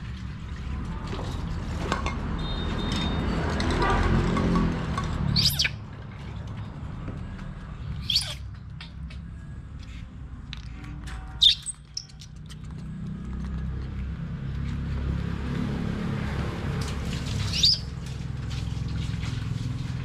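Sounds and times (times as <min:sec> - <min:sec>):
baby monkey squealing: 0:05.3 - 0:05.8, 0:08.0 - 0:08.5, 0:11.3 - 0:12.4, 0:17.5 - 0:17.9.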